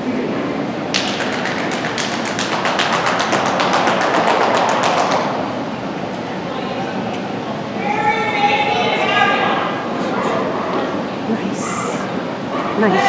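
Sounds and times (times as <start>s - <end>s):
hall background noise: 0.0s - 13.0s
rapid hand clapping: 0.9s - 5.4s.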